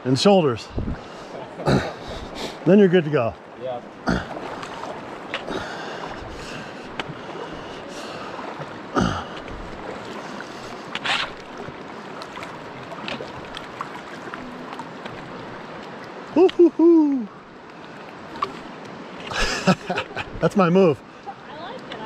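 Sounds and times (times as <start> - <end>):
river water rushing: 0.0 - 22.0
wading splashes: 0.0 - 22.0.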